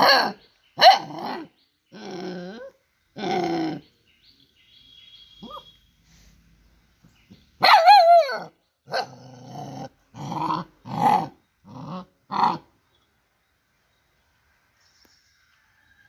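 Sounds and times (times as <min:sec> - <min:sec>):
puppy barking: 0:00.0 - 0:01.5, 0:05.4 - 0:05.7, 0:07.6 - 0:09.2.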